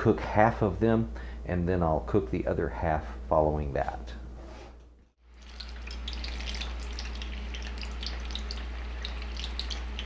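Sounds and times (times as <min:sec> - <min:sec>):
low steady hum: 0:00.0 - 0:10.0
chips sizzling in hot oil: 0:05.2 - 0:10.0.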